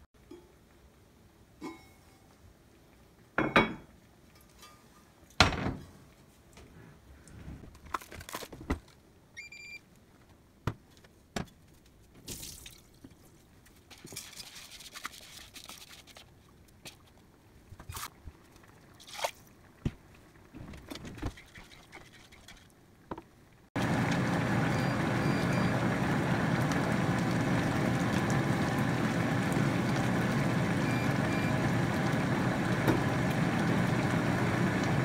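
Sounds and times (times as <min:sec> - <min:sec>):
cooktop electronic beep: 0:30.8 - 0:31.6.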